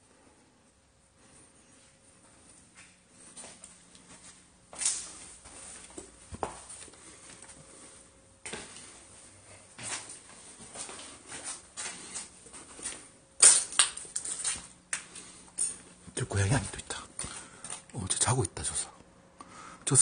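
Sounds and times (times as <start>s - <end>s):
footsteps on gritty floor: 2.2s - 15.8s.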